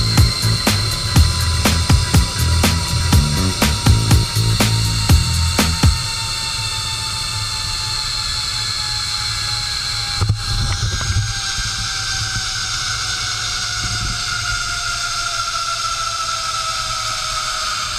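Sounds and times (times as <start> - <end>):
zip-line pulleys whining on cable: 0.0 - 17.9
wind rumble on microphone: 10.1 - 12.8, 13.4 - 15.1.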